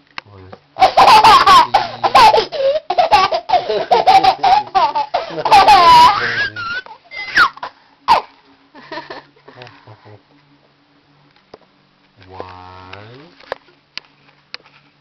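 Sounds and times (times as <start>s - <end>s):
young child laughing: 0.8s - 9.3s
child squealing: 5.6s - 8.3s.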